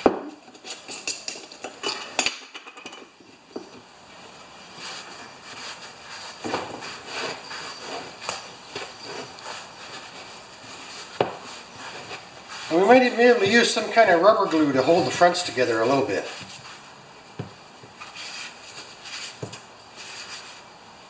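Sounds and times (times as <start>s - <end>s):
rag rubbing rubber tire: 4.8s - 16.8s.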